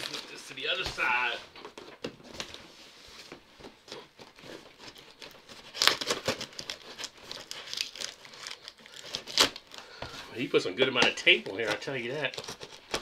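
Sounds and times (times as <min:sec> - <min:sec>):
tape ripping: 0:04.2 - 0:09.8, 0:10.9 - 0:13.0
knife slitting packing tape: 0:04.9 - 0:09.7, 0:11.7 - 0:13.0.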